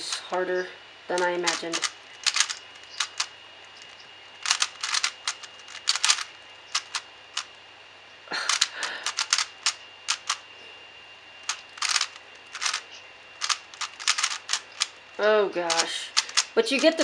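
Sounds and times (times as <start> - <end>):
plastic puzzle cube clicking: 1.2 - 7.5, 8.5 - 10.4, 11.5 - 12.8, 13.4 - 14.9, 15.7 - 17.0.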